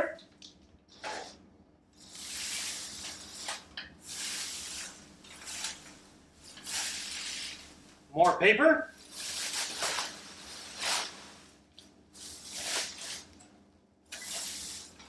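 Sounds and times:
shredded paper rustling: 0:02.0 - 0:07.9, 0:09.0 - 0:13.3.

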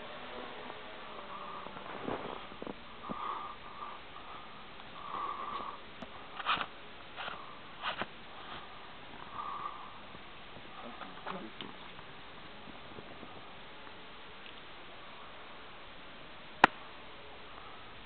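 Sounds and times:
steady hiss: 0:00.0 - 0:18.0
person sniffing and breathing: 0:03.0 - 0:10.0.

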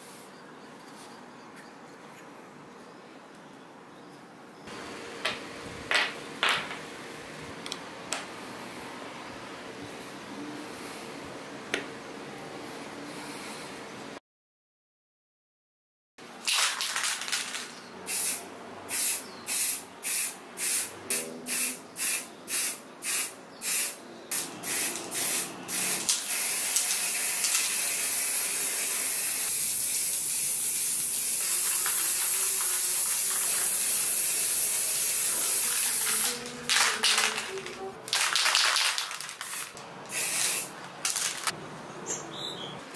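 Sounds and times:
spray paint can hissing: 0:16.5 - 0:41.6.

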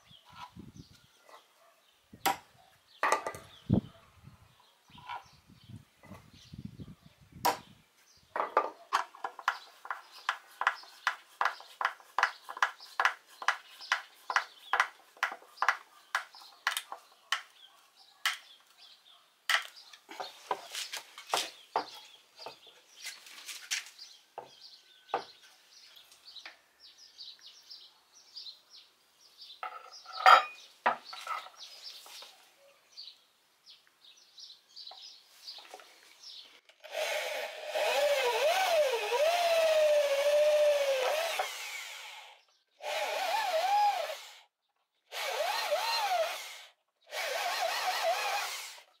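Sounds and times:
wooden pieces knocking and scraping: 0:03.0 - 0:03.5, 0:08.3 - 0:17.5, 0:19.5 - 0:24.5, 0:29.6 - 0:31.7
hammer driving nails into wood: 0:09.3 - 0:17.5.

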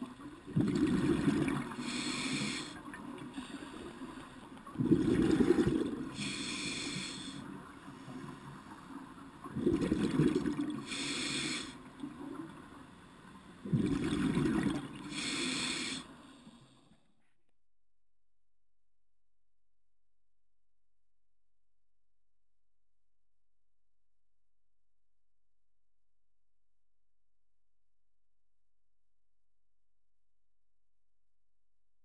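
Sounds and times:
bubbling exhalation underwater: 0:00.5 - 0:01.9, 0:04.8 - 0:06.2, 0:09.5 - 0:10.8, 0:13.7 - 0:15.0
regulator hissing inhalation: 0:01.6 - 0:04.4, 0:05.4 - 0:08.2, 0:10.8 - 0:11.9, 0:15.0 - 0:16.8.

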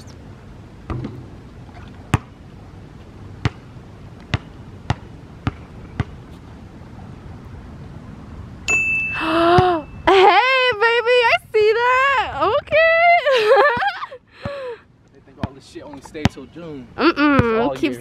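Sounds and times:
steady high tone with hiss: 0:00.0 - 0:12.2
basketball bouncing on hard court: 0:00.9 - 0:01.3, 0:03.4 - 0:03.7, 0:04.3 - 0:06.2.

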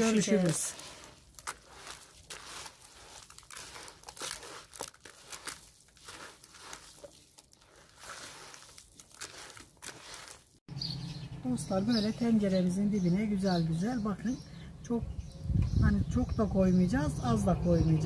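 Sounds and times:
food packaging crinkling: 0:00.0 - 0:10.6.

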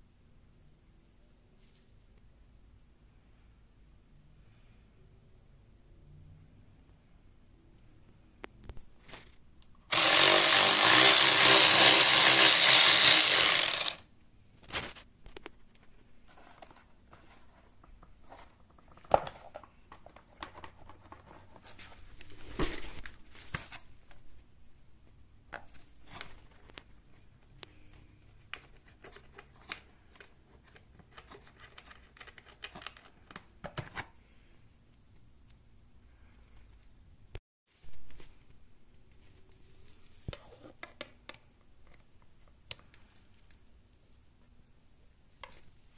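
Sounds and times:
power ratchet spinning: 0:09.9 - 0:14.1.

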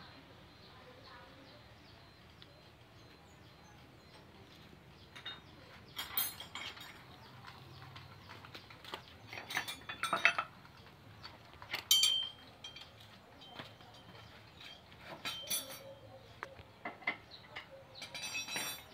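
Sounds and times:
sharp metallic clinks and clatter: 0:05.1 - 0:16.2, 0:16.9 - 0:18.9.

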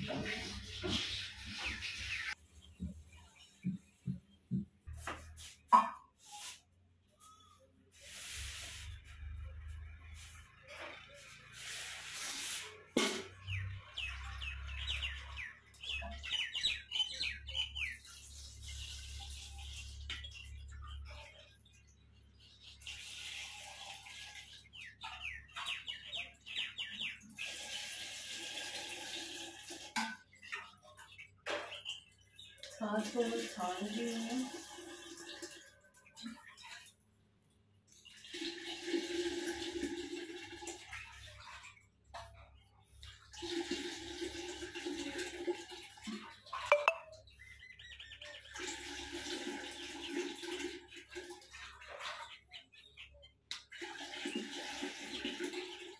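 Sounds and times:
liquid pouring and splashing: 0:22.8 - 0:25.0, 0:27.3 - 0:31.1, 0:32.5 - 0:37.2, 0:38.0 - 0:47.0, 0:48.4 - 0:52.8, 0:53.6 - 0:55.9.

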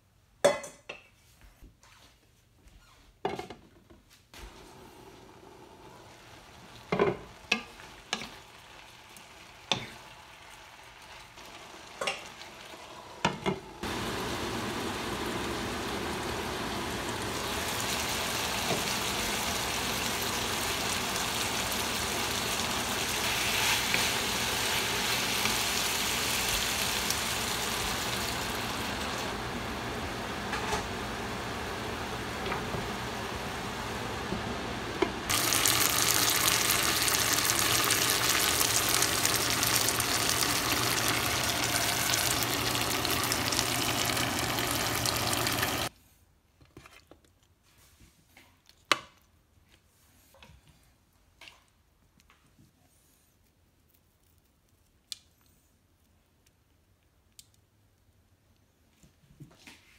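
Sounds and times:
meat sizzling in a skillet: 0:06.0 - 0:29.5, 0:35.3 - 0:45.9.

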